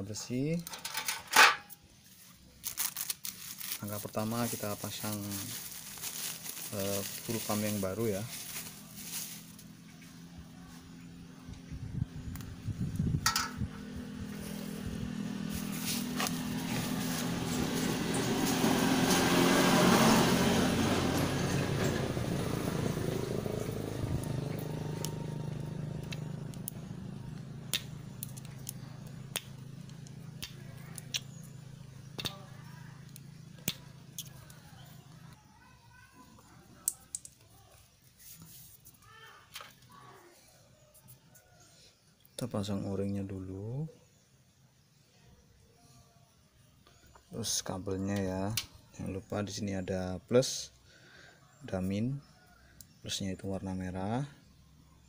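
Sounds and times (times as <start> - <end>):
vehicle engine passing: 3.8 - 35.4.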